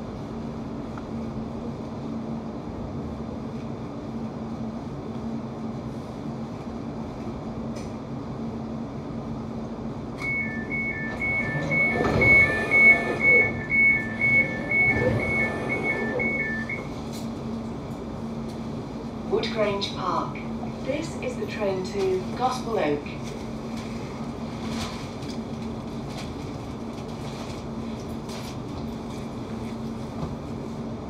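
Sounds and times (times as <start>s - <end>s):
train interior hum: 0.0s - 31.0s
two-tone door alarm beeping: 10.2s - 17.0s
sliding doors knocking: 11.1s - 16.1s.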